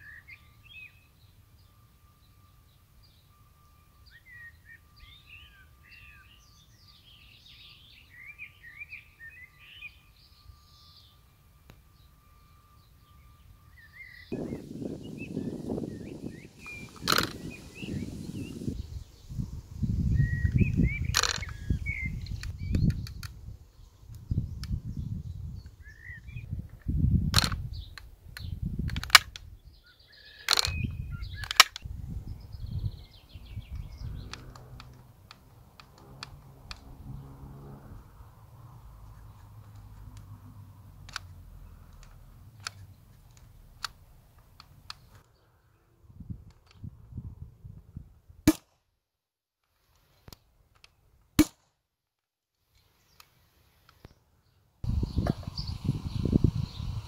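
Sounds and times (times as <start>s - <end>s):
birds chirping faintly: 0.0s - 26.8s, 29.4s - 46.0s, 52.7s - 57.0s
shotgun mechanism clicks: 16.6s - 17.4s, 28.9s - 29.5s, 30.5s - 30.8s, 31.4s - 31.8s, 41.9s - 45.1s
low rumble: 31.0s - 41.7s
trigger sharp snap: 31.4s - 31.9s, 48.5s - 48.8s, 51.4s - 51.7s.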